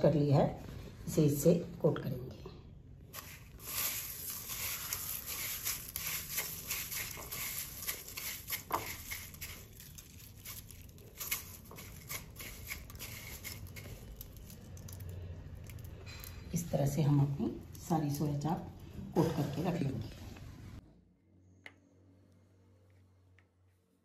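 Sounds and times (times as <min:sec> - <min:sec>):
cornflakes crackling and crunching: 0:03.1 - 0:16.6.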